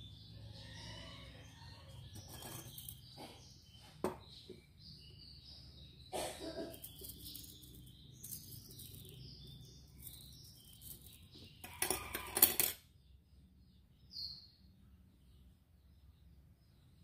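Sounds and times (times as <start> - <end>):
small birds chirping: 0.0 - 17.0
metal rings clinking: 2.1 - 3.1, 6.7 - 12.8.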